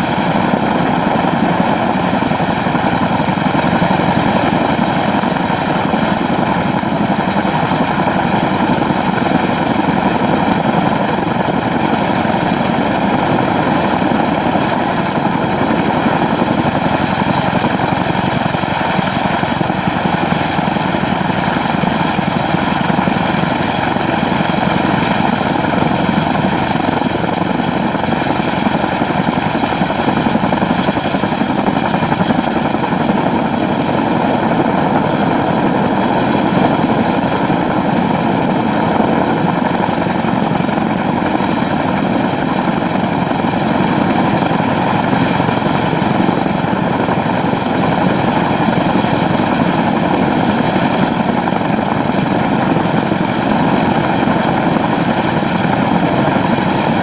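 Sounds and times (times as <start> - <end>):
helicopter rotor and turbine noise: 0.0 - 57.0.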